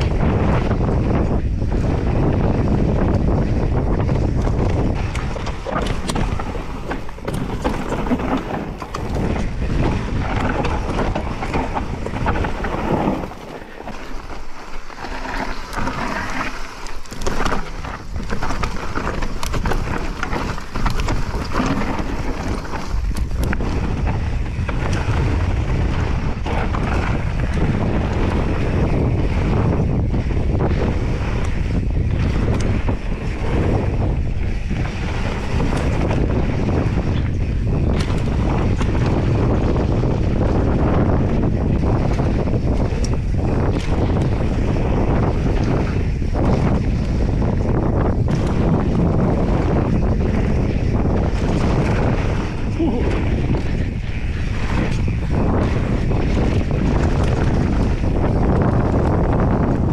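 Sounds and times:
wind buffeting microphone: 0.0 - 59.9
bike clattering over bumps: 1.1 - 59.9
tyres rushing on dirt: 4.1 - 30.2.

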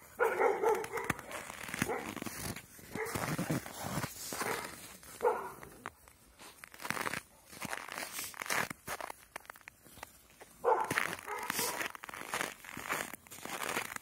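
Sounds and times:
crunching of deep snow: 0.0 - 14.0
dog barking: 0.1 - 2.2, 2.9 - 3.4, 4.4 - 5.7, 10.6 - 11.9.

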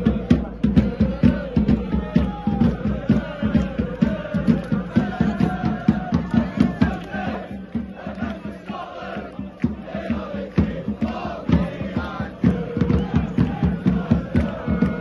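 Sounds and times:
quick steady drumbeat: 0.0 - 15.0
voices singing a chant: 0.0 - 15.0.

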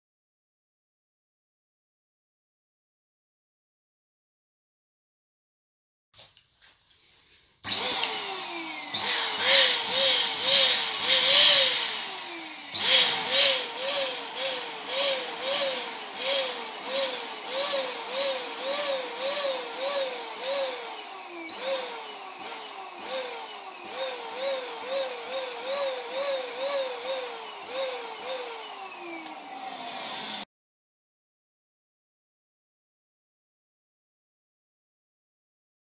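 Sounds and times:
electric balloon pump whirring: 7.6 - 30.5.

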